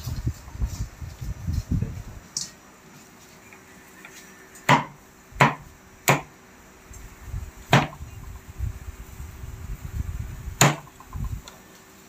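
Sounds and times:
cleaver chopping on wooden board: 0:04.6 - 0:06.3, 0:07.7 - 0:08.0, 0:10.6 - 0:10.9.

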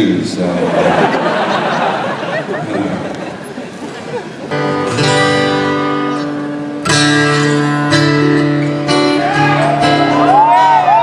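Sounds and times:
live band playing: 0:03.6 - 0:11.0
acoustic guitar strumming chords: 0:04.5 - 0:11.0.

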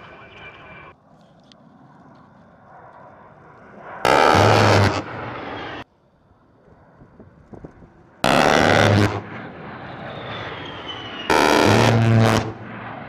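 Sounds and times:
jet engine whine: 0:00.0 - 0:13.0
rotary cannon firing bursts: 0:04.0 - 0:05.8, 0:08.2 - 0:13.0.

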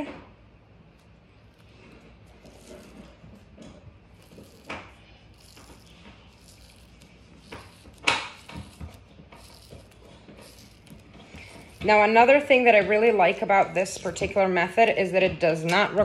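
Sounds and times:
tape peeling off roll: 0:00.9 - 0:12.5.

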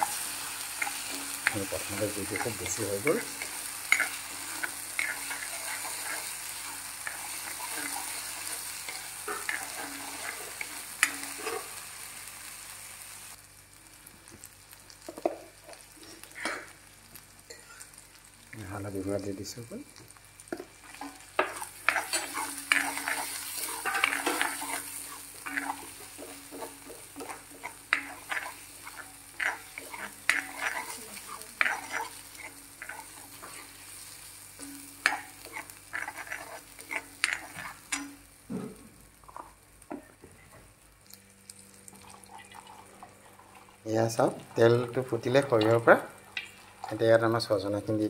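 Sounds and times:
spatula scraping a pan: 0:00.0 - 0:11.8, 0:20.8 - 0:34.0, 0:34.6 - 0:38.0
oil sizzling: 0:00.0 - 0:48.0.

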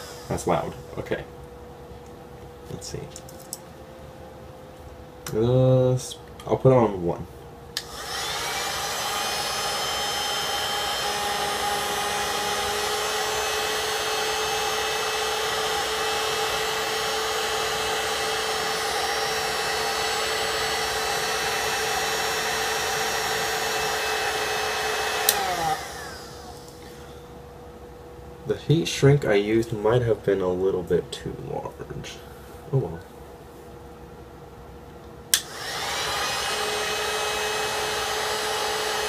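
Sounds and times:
heat gun blowing air: 0:00.0 - 0:00.8, 0:07.8 - 0:27.1, 0:35.3 - 0:39.0
heat gun motor whine: 0:00.0 - 0:00.8, 0:07.8 - 0:27.2, 0:35.3 - 0:39.0.

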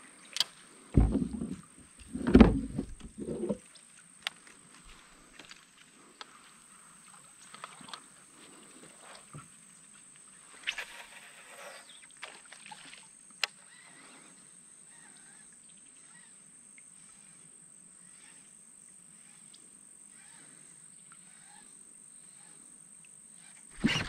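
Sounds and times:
soft knocks and clicks: 0:01.0 - 0:03.6
river ambience: 0:23.7 - 0:24.0.

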